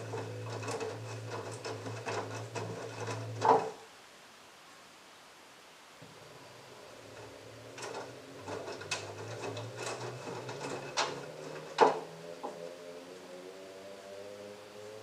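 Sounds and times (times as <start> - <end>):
washing machine motor humming: 0.0 - 3.8, 6.0 - 13.0.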